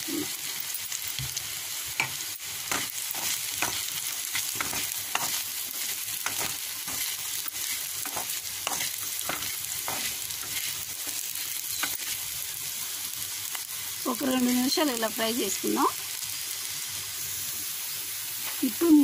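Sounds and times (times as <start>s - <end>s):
vegetables sizzling in oil: 0.0s - 19.0s
stirring strokes scraping pan: 2.0s - 12.6s.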